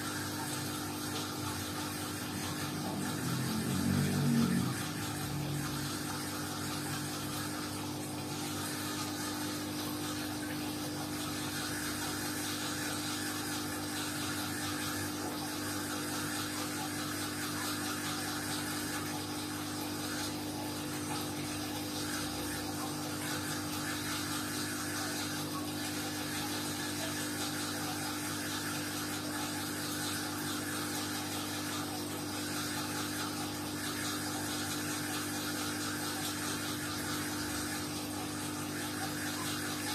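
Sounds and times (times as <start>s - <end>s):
aquarium pump humming: 0.0s - 39.9s
whir of moving water: 1.1s - 11.1s.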